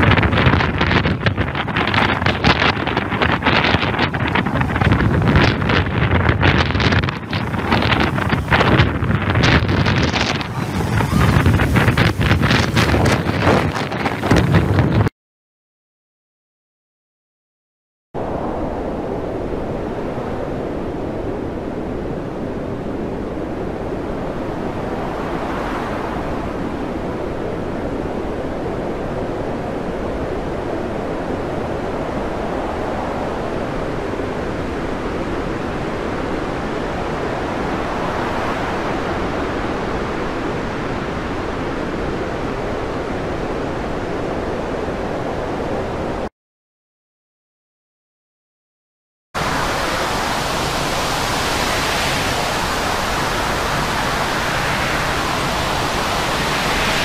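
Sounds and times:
roar of storm wind and spray: 0.0s - 15.1s, 18.2s - 46.3s, 49.4s - 57.0s.

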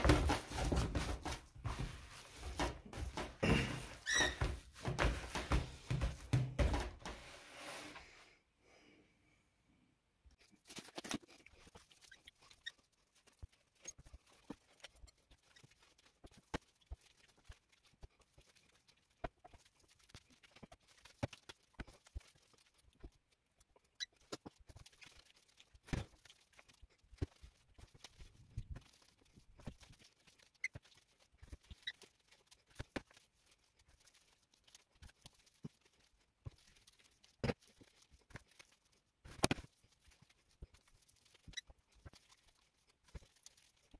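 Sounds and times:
hands squelching minced meat: 10.6s - 43.9s.

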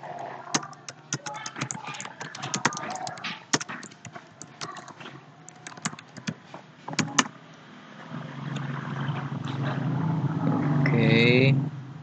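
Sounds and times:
keyboard key clicks: 0.5s - 7.3s.

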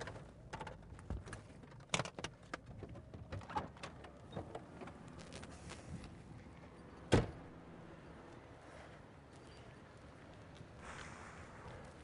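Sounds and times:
low vehicle rumble: 4.0s - 12.0s.

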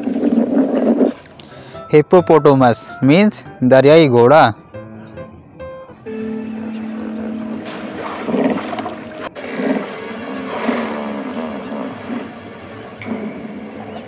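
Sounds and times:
hippopotamus grunting calls: 6.8s - 14.0s.

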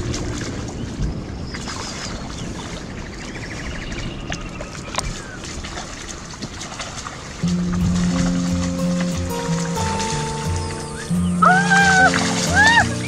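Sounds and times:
water splashing and sloshing: 0.0s - 13.0s
wind noise on microphone: 0.0s - 13.0s.

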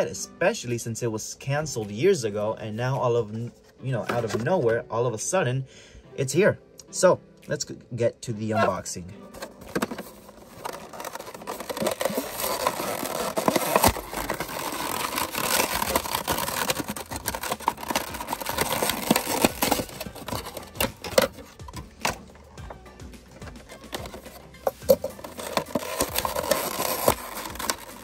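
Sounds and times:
plastic packaging crinkling: 9.3s - 22.2s, 23.6s - 28.0s
plastic snapping: 9.4s - 22.3s.

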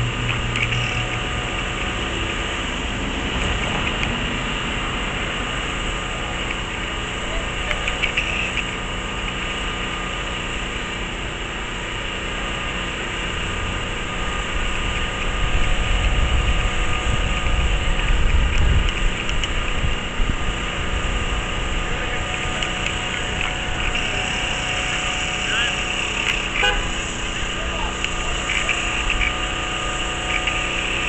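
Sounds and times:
vehicle engines idling: 0.0s - 31.0s
low rumble: 13.0s - 25.4s.

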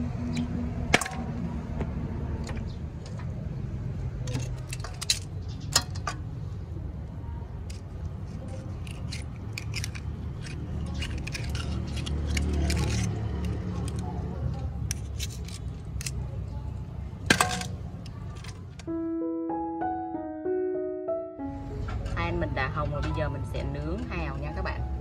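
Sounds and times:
knife clicking and scraping shells: 4.2s - 6.3s, 7.6s - 16.5s
shell chips dropping into metal basin: 4.3s - 6.2s, 17.3s - 18.8s.

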